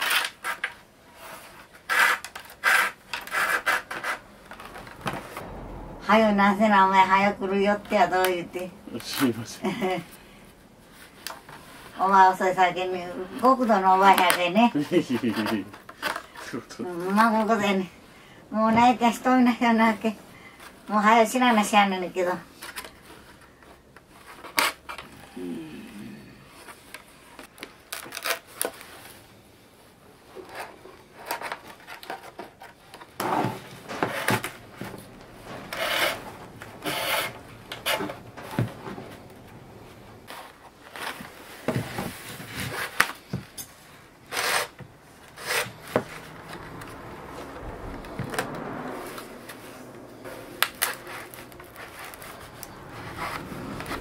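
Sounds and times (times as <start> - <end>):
strips scraping through bamboo basket: 0.0 - 4.9, 30.4 - 39.2, 40.2 - 46.8.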